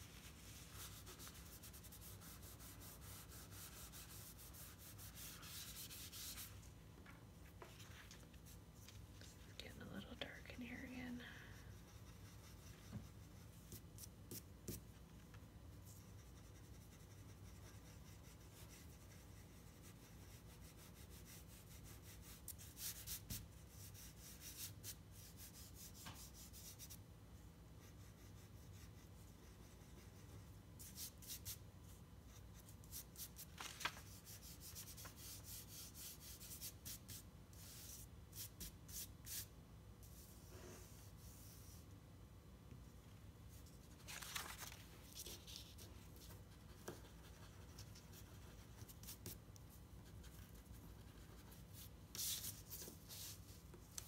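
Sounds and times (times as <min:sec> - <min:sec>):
low room hum: 0:00.0 - 0:54.0
pencil scratching on paper: 0:00.1 - 0:06.5, 0:15.8 - 0:27.0, 0:45.1 - 0:49.4, 0:50.0 - 0:54.0.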